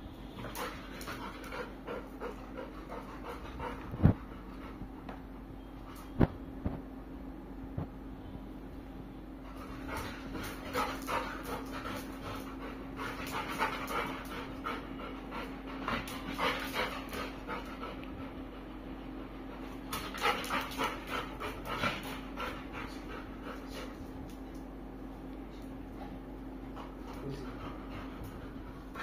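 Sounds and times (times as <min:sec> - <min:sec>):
dog panting: 0:00.4 - 0:05.2, 0:09.5 - 0:24.4, 0:25.9 - 0:29.0.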